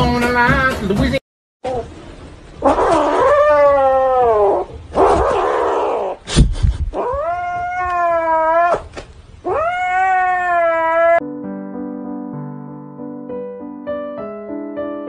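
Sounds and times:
cat yowling: 2.6s - 6.2s, 6.9s - 11.2s.

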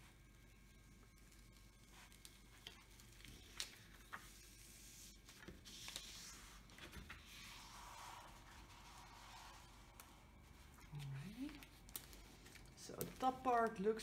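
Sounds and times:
paper rustling and crackling: 1.1s - 14.0s.

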